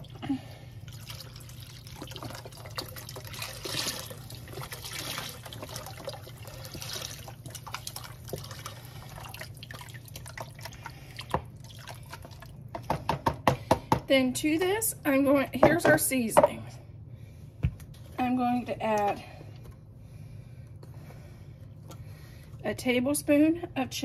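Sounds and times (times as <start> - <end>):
liquid pouring into liquid: 0.0 - 12.7.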